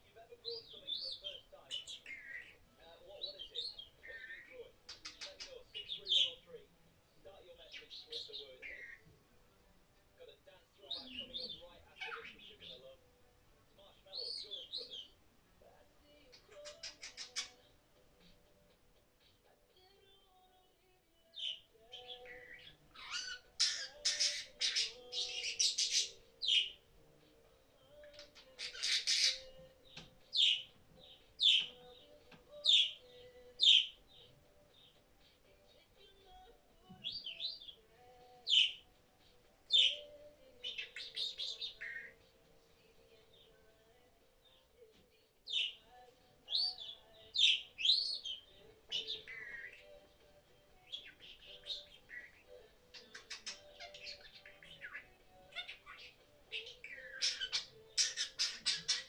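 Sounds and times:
budgerigar chirping and squawking: 0.4 - 6.5, 7.6 - 9.1, 10.9 - 12.9, 16.3 - 17.7, 21.4 - 26.8, 28.1 - 31.8, 32.5 - 33.0, 33.6 - 34.9, 38.5 - 38.8, 39.7 - 42.2, 46.5 - 49.9, 50.9 - 59.0.

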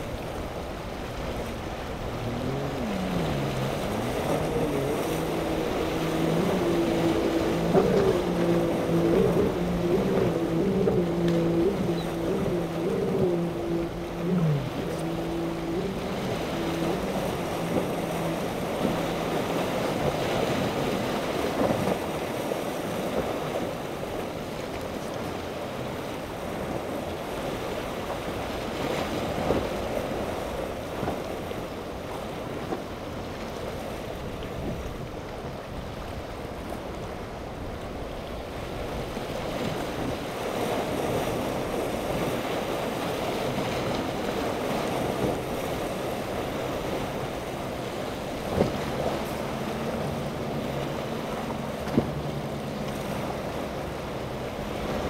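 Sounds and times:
water sloshing and breaking: 0.0 - 25.6
faint powerboat engines droning: 0.0 - 55.0
wind on microphone: 0.0 - 55.0.

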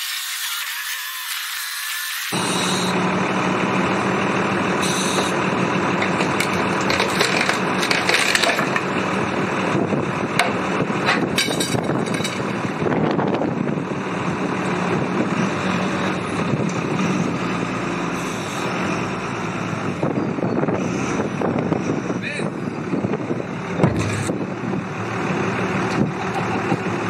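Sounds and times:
diesel engine running: 2.3 - 27.0
wooden blocks cracking: 6.1 - 8.9.

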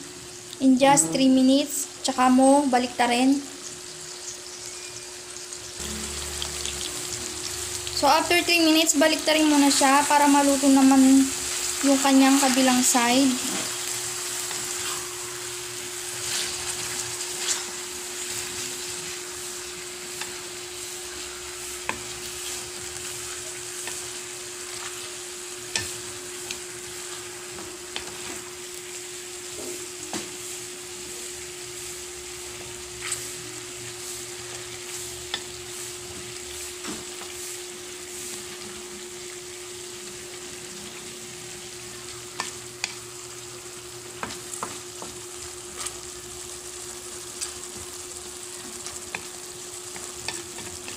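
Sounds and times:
chicken sizzling in hot oil: 0.0 - 50.9
wooden spatula scraping pan: 16.2 - 17.8.

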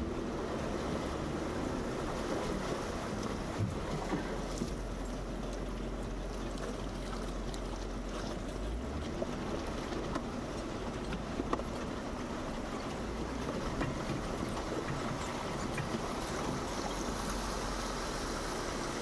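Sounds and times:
low engine rumble: 0.0 - 19.0
water splashing: 0.0 - 19.0.

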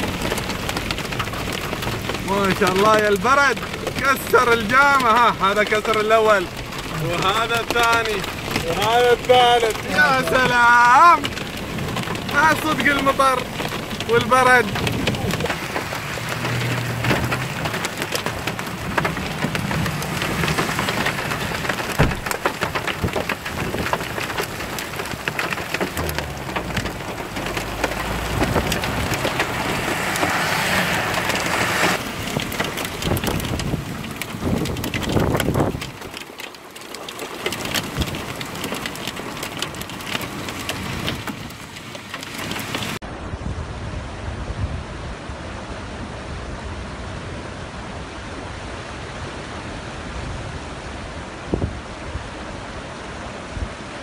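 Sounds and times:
hail and heavy rain: 0.0 - 43.0
vehicles driving through water: 0.0 - 43.2
floodwater rushing: 0.0 - 54.0.

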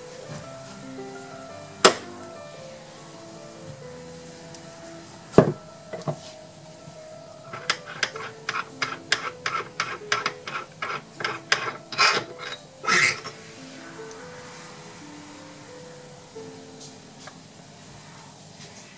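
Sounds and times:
light metal clicks and rubbing: 7.5 - 13.4.

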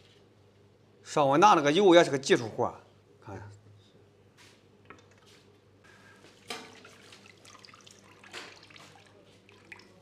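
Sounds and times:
liquid splashing: 6.4 - 10.0
broth pouring into stockpot: 6.8 - 10.0.

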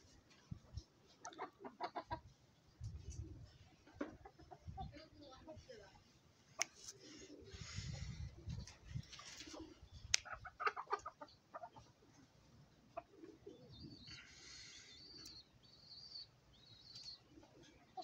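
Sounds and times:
chicken clucking: 1.2 - 2.4, 3.8 - 4.8, 9.4 - 13.8.

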